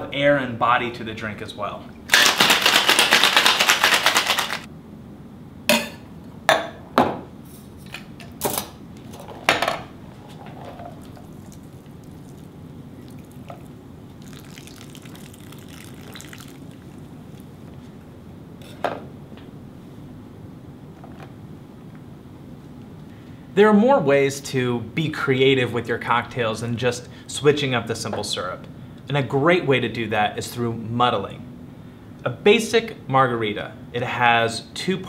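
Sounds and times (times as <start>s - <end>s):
ice rattling in metal shaker: 2.1s - 4.7s
liquid pouring into glass: 10.9s - 17.8s.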